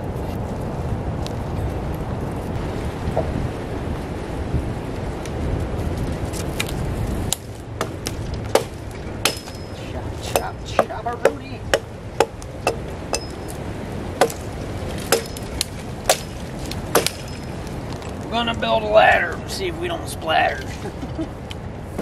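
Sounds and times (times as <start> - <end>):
wind rumble on microphone: 0.0 - 22.0
hammer striking wood: 7.3 - 9.7, 10.3 - 13.6, 14.2 - 17.5.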